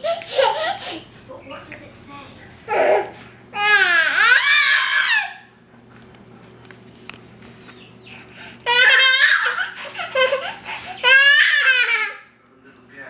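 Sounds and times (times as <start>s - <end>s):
toddler laughing: 0.0s - 1.1s, 2.7s - 4.9s, 8.6s - 12.2s.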